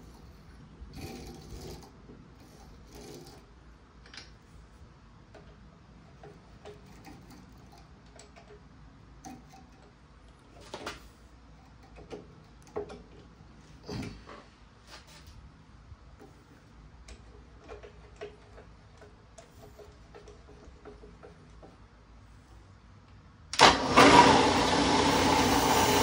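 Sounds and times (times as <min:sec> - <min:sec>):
metallic clicks of vise: 0:05.3 - 0:13.4.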